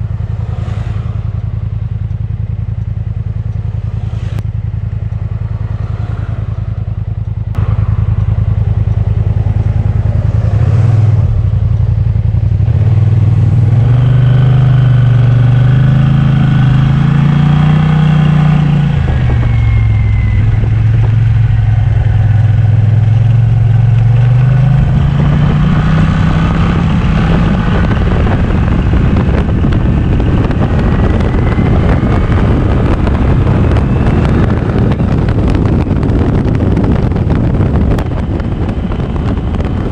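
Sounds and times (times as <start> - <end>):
road noise: 0.0 - 39.9
wind noise: 0.0 - 39.9
scooter engine running: 1.2 - 13.0.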